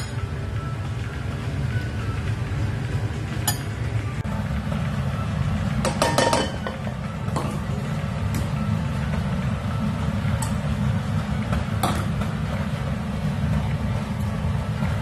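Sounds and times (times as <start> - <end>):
metal utensils clinking on cookware: 5.8 - 7.6.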